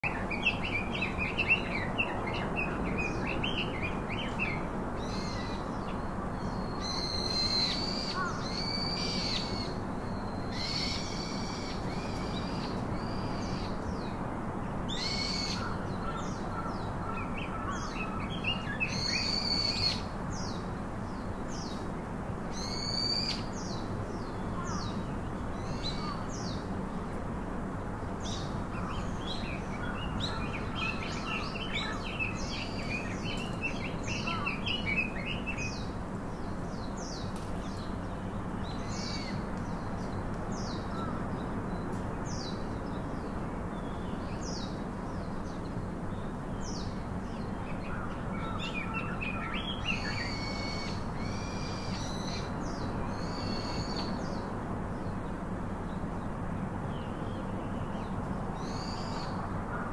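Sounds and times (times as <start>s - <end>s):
birds whistling calls: 47.9s - 54.4s.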